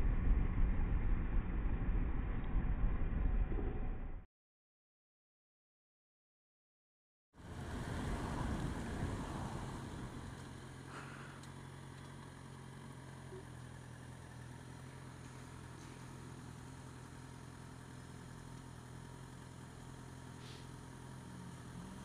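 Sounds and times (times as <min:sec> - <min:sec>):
wind and road noise: 0:07.4 - 0:22.0
motorcycle engine idling: 0:08.6 - 0:22.0.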